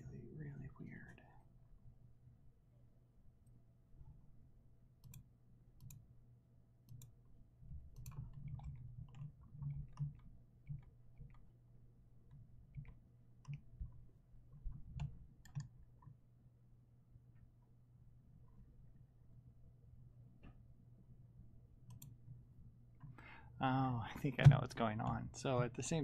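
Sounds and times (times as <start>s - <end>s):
faint low hum: 0.0s - 26.0s
computer mouse clicks: 5.0s - 6.0s, 6.9s - 7.2s, 7.9s - 11.5s, 12.3s - 16.2s, 21.8s - 22.2s.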